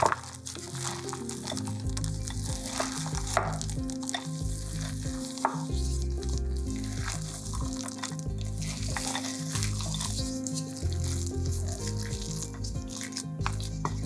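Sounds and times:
spatula folding cookie dough: 0.0 - 14.0.

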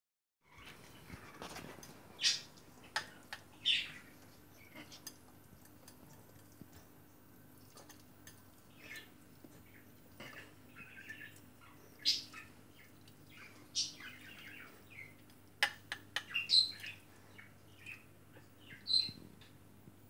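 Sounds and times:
high bird-like chirps: 18.6 - 19.2.

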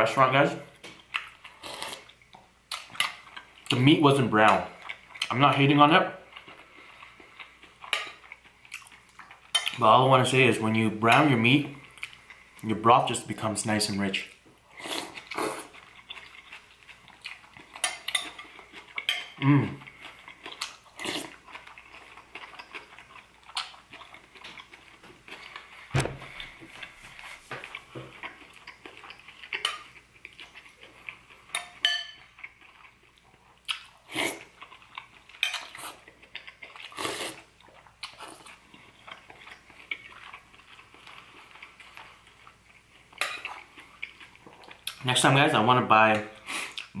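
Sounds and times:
chewing and slurping soup: 0.8 - 12.7, 14.2 - 45.3, 46.2 - 47.0
metal spoon clinking on ceramic bowl: 31.6 - 32.2.

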